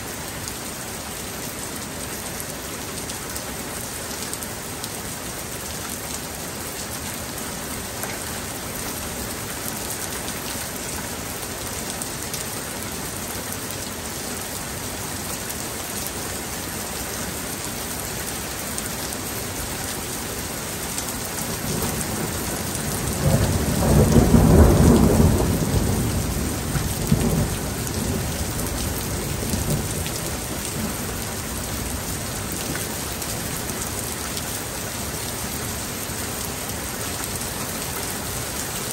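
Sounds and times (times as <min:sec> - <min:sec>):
steady rain falling: 0:00.0 - 0:38.9
rumble of thunder: 0:21.7 - 0:31.0.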